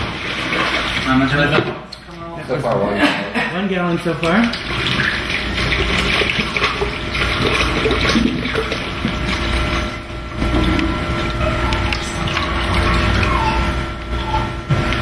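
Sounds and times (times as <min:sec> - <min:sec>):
water pouring into plastic pitcher: 0:00.0 - 0:01.6, 0:04.1 - 0:13.4.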